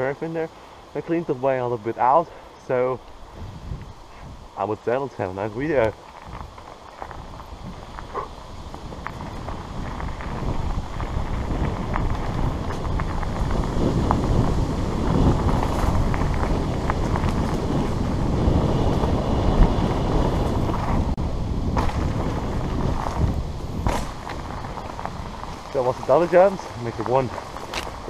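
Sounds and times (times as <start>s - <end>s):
wind buffeting microphone: 1.9s - 28.0s
bike tyres rumbling over dirt: 3.1s - 28.0s
bike clicks and rattles: 5.8s - 21.1s, 21.7s - 28.0s.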